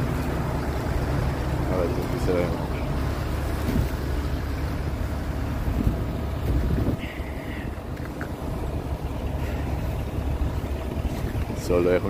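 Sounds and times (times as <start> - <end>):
truck engine idling: 0.0 - 12.0
wind buffeting microphone: 2.6 - 11.7.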